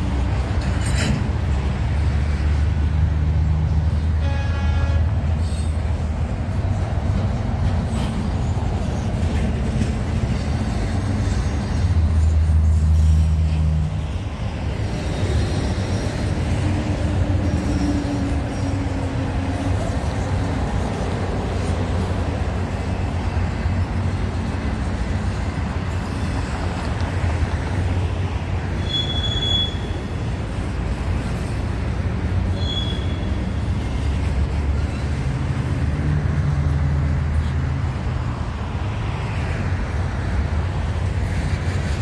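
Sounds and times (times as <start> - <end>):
freight train rumbling past: 0.0 - 42.0
train wheel squeals: 5.3 - 5.9, 10.1 - 13.7, 14.8 - 20.3, 25.9 - 26.8, 28.6 - 30.3, 31.0 - 35.2.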